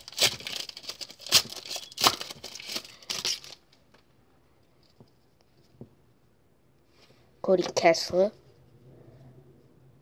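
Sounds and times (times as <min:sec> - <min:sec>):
plastic wrapper ripping: 0:00.0 - 0:03.7
plastic wrapper crinkling: 0:00.0 - 0:03.9.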